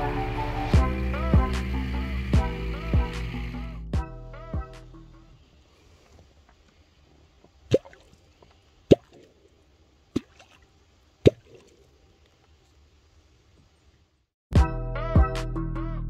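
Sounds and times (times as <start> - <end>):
sharp plops in water: 7.7 - 8.2, 8.9 - 9.4, 10.1 - 11.8.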